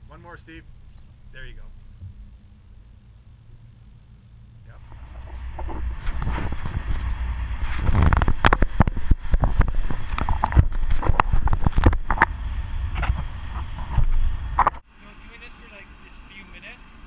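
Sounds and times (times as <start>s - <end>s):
wind rumble on microphone: 4.8s - 14.8s.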